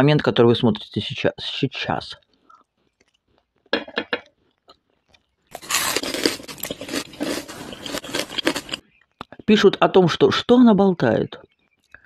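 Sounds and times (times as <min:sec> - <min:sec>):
person chewing crispy food: 0:02.2 - 0:03.7, 0:04.3 - 0:09.4.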